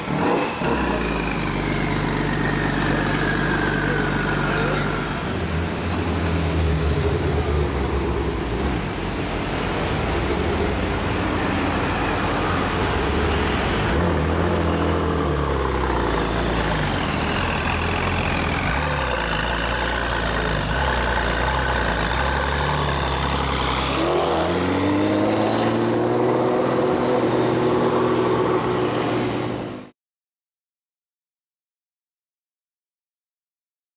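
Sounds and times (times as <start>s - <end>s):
car engines idling: 0.0s - 13.8s, 14.7s - 24.0s
car accelerating away: 13.9s - 29.2s.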